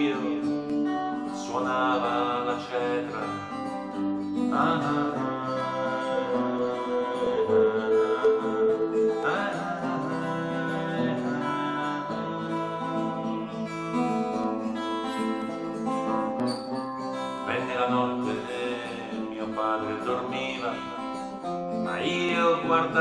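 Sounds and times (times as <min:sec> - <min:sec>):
acoustic guitar strumming: 0:00.0 - 0:23.0.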